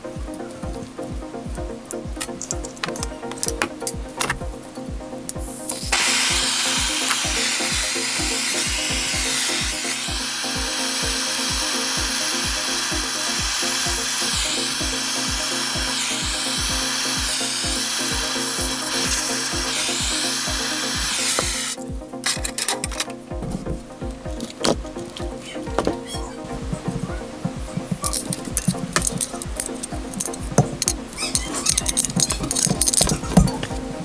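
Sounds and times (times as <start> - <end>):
background music with beat: 0.0 - 34.0
torch flame hissing: 5.4 - 21.8.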